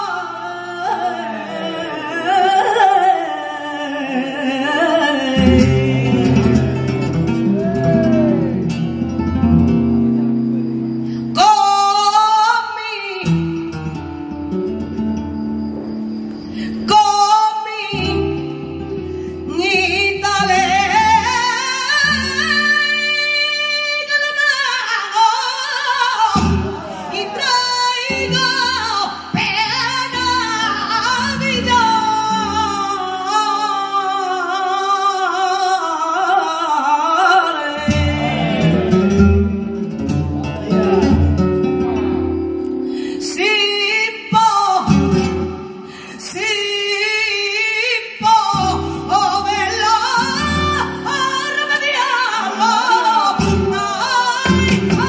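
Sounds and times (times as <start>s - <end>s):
flamenco guitar: 0.0s - 55.0s
woman singing flamenco: 0.0s - 55.0s.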